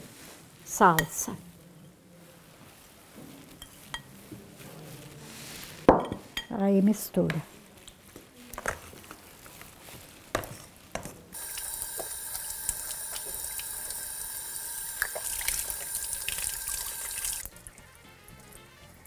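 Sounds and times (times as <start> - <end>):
water running from kitchen tap: 11.4 - 17.6.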